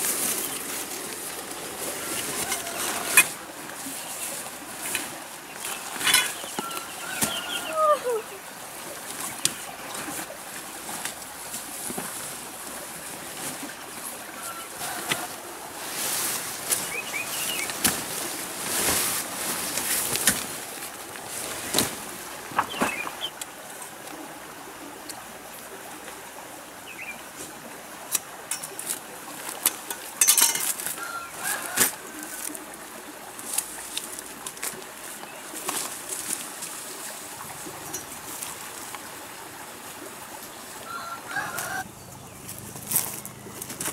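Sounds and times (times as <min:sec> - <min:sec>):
tent fabric rustling: 0:00.0 - 0:07.6, 0:09.0 - 0:23.2, 0:33.4 - 0:39.0
tent frame clicking and snapping: 0:19.6 - 0:20.7.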